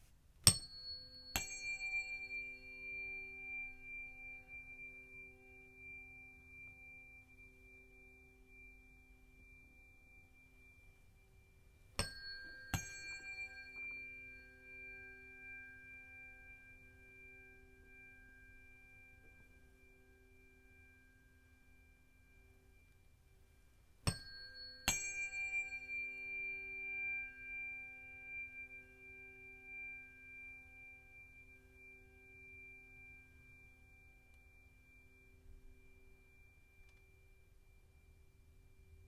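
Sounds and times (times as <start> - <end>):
tuning forks ringing: 0.5 - 39.0
tuning fork tap: 11.9 - 14.4, 34.3 - 35.2, 36.2 - 37.4.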